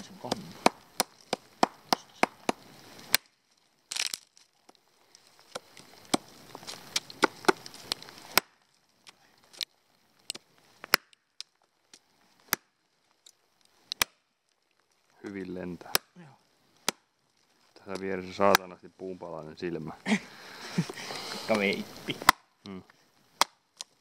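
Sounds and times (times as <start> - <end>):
decayed wood tearing and crunching: 0.0 - 24.0
blade chopping into stump: 0.3 - 3.3.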